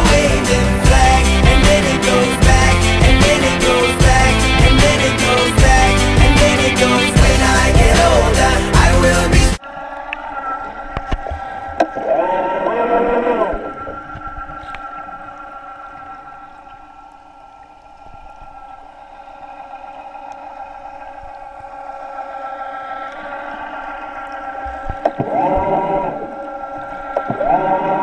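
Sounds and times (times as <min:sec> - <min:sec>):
sustained music chord: 0:00.0 - 0:09.6
held sung notes: 0:00.0 - 0:09.7.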